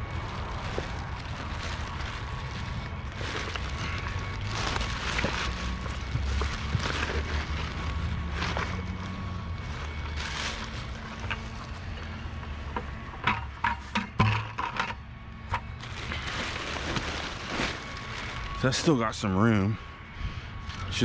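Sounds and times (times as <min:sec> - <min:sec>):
plastic bag rustling: 0:00.0 - 0:19.8.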